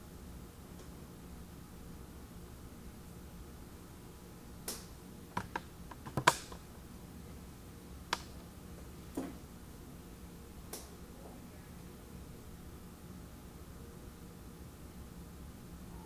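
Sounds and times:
low room hum: 0.0s - 16.0s
sharp clicks and taps: 5.4s - 6.6s.

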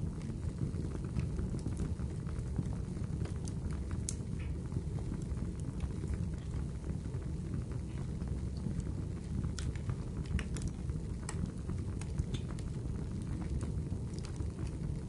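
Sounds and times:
sharp crackles and ticks: 0.1s - 15.0s.

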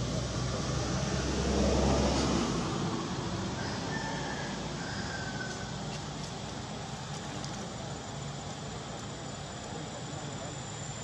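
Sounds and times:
outdoor background noise: 0.0s - 11.0s.

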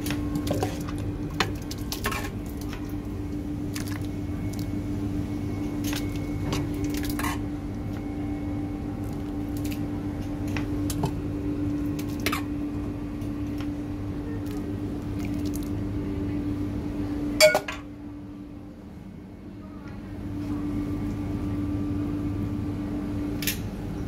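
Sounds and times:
steady machine hum: 0.0s - 24.0s
ladle squelching in thick sauce: 0.3s - 3.0s, 3.6s - 4.7s.

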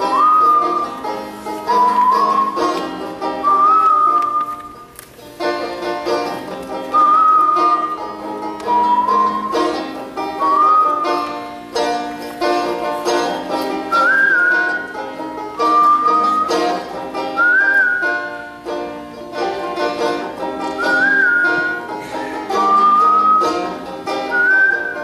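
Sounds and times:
person whistling melody: 0.0s - 1.0s, 1.6s - 4.9s, 6.8s - 11.4s, 13.7s - 15.0s, 15.6s - 18.4s, 20.6s - 25.0s
banjo fingerpicked: 0.0s - 25.0s.

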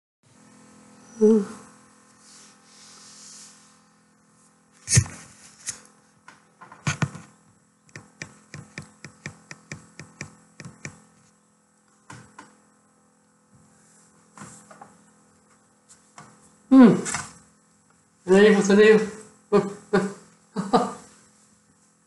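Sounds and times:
sharp evenly spaced clicks: 7.9s - 11.0s.

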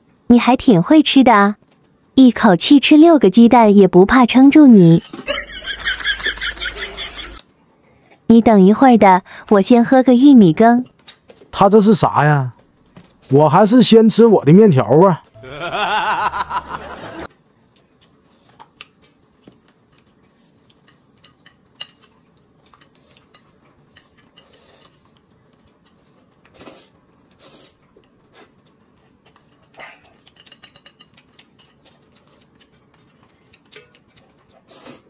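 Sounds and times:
chopsticks against plate: 17.7s - 26.6s, 28.0s - 34.7s
slurping noodles: 26.4s - 28.6s, 34.6s - 35.0s.

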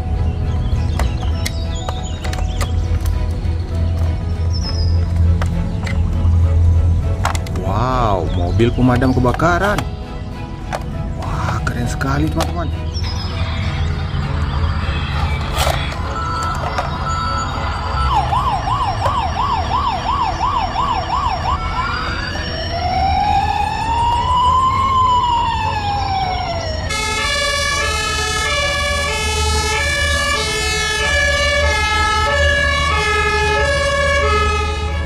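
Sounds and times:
emergency vehicle siren: 11.2s - 35.0s.

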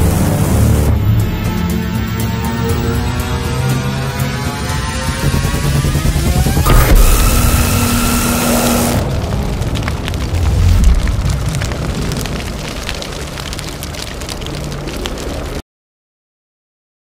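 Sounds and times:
deep rumbling boom: 6.6s - 15.6s
scattered crackles: 6.6s - 15.6s.

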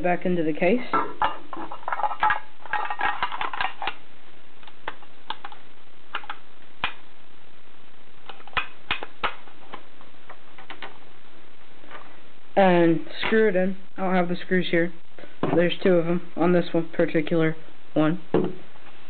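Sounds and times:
rattles and scrapes: 0.8s - 4.0s.

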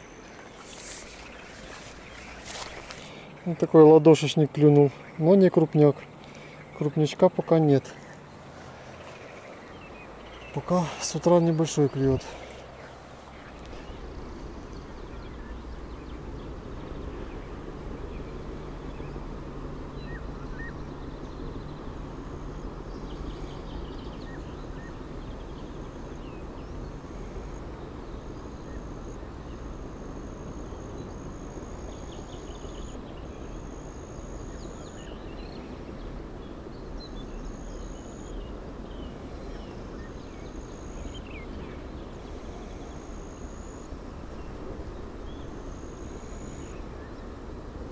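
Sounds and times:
faint bird chirps: 19.9s - 47.4s.

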